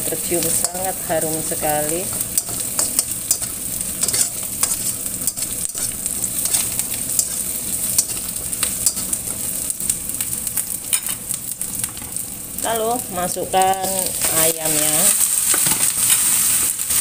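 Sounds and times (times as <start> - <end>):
food sizzling in hot oil: 0.0 - 17.0
metal fork scraping wok: 1.6 - 9.4.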